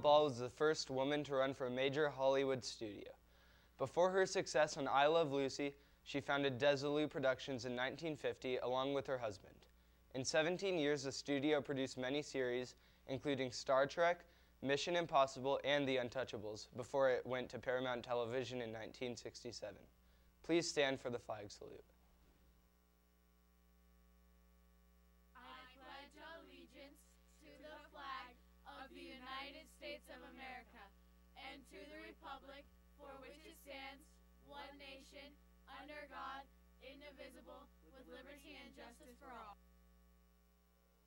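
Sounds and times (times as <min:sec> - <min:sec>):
electrical mains hum: 0:00.0 - 0:41.0
person reciting faintly: 0:25.4 - 0:39.6.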